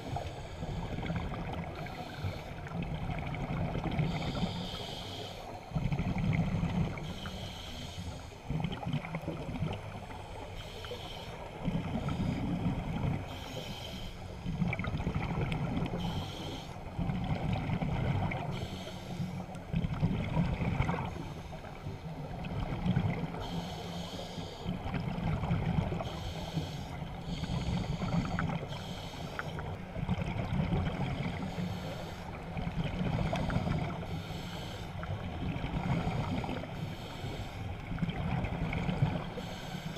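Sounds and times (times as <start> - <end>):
regulator inhale hiss: 0.0 - 2.7, 4.0 - 5.7, 6.8 - 8.5, 10.1 - 12.6, 13.2 - 14.5, 16.0 - 16.9, 18.4 - 19.6, 23.3 - 24.7, 25.9 - 29.7, 31.3 - 35.3, 35.9 - 37.9, 39.2 - 39.9
exhaled bubbles rumbling: 0.0 - 4.5, 5.7 - 7.1, 8.4 - 10.2, 11.5 - 13.3, 14.4 - 16.1, 16.8 - 18.6, 19.5 - 23.4, 24.7 - 26.1, 29.5 - 31.5, 32.4 - 34.1, 35.0 - 36.8, 37.8 - 39.4.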